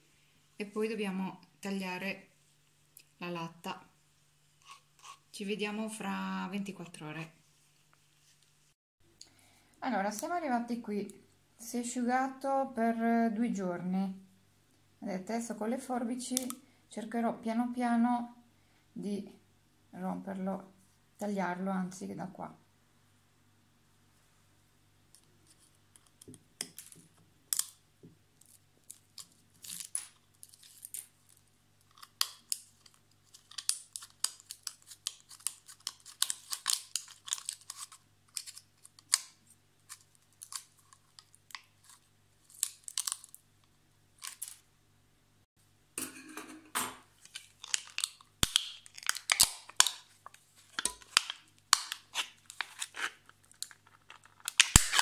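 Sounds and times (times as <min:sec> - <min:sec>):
metal crinkling and tearing: 0:28.4 - 0:43.4, 0:47.2 - 0:55.0.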